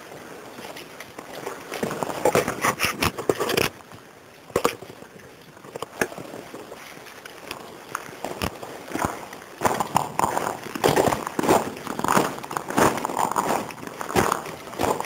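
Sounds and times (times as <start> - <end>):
footsteps crunching on stones: 7.6 - 15.0.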